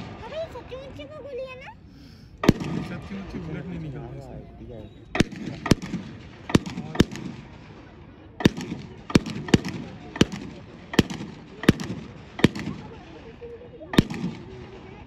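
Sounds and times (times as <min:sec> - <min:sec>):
murmur of voices: 0:00.0 - 0:15.0
sharp bangs with echo: 0:02.4 - 0:03.9, 0:05.1 - 0:15.0.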